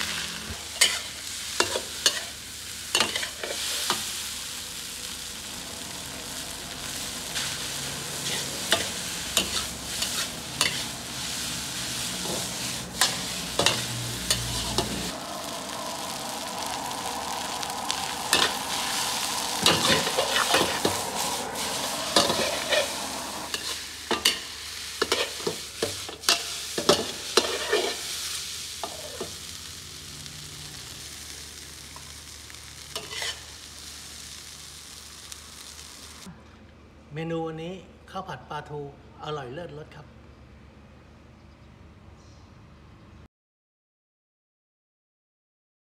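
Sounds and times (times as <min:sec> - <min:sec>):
food sizzling in a wok: 0:00.0 - 0:36.3
metal spatula scraping a pan: 0:00.2 - 0:02.4, 0:03.0 - 0:04.0, 0:08.2 - 0:11.4, 0:19.6 - 0:29.4, 0:33.0 - 0:33.5.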